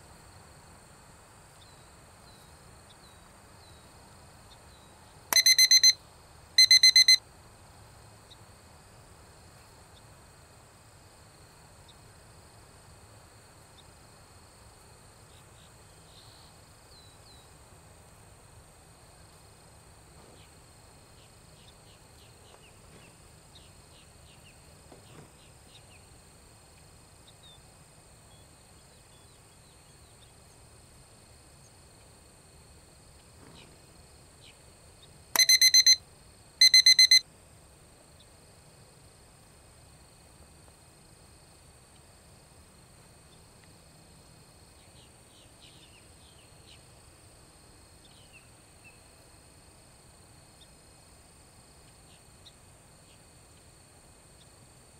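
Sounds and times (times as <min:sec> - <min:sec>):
electronic beep: 0:05.3 - 0:06.0, 0:06.6 - 0:07.2, 0:35.4 - 0:36.0, 0:36.6 - 0:37.2
faint short chirps: 0:05.4 - 0:06.0, 0:06.6 - 0:07.2, 0:35.4 - 0:36.0, 0:36.6 - 0:37.2
high-pitched insect drone: 0:35.4 - 0:36.0.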